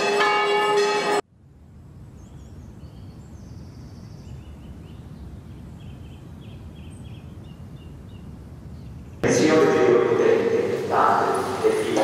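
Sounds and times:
small birds chirping: 2.0s - 9.2s.

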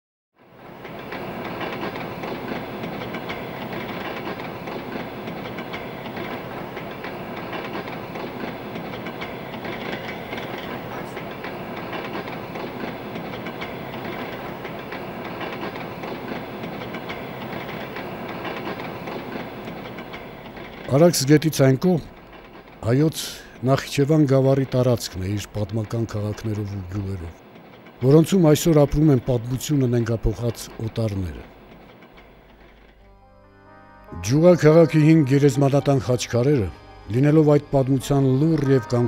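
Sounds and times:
passenger train running on track: 0.4s - 39.0s.

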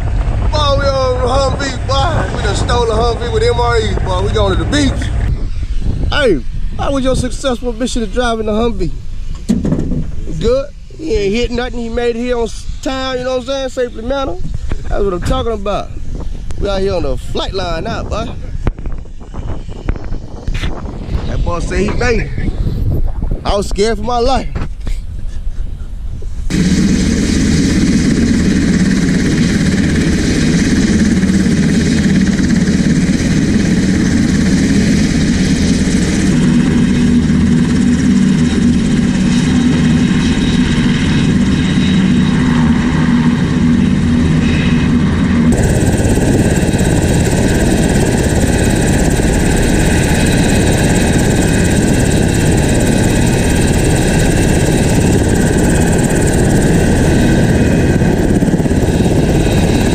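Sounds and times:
helicopter engines and rotor: 0.0s - 25.0s, 26.4s - 59.9s.

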